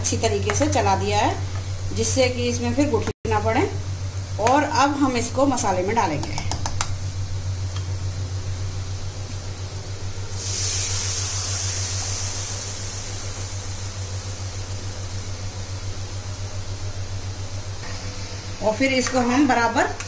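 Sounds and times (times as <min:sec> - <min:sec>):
steady low hum: 0:00.0 - 0:20.0
batter sizzling in hot oil: 0:08.5 - 0:20.0.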